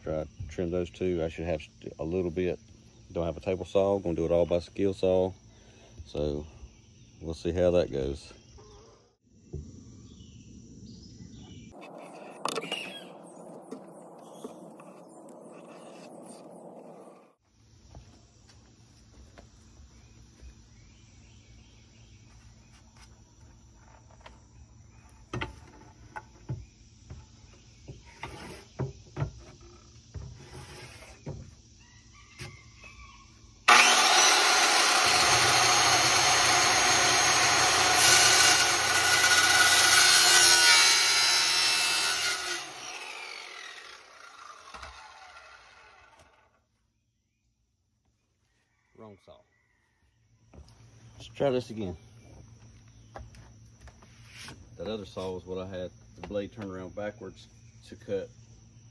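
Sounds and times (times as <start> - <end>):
circular saw cutting wood: 11.7 - 17.1, 30.4 - 31.2, 33.7 - 46.6.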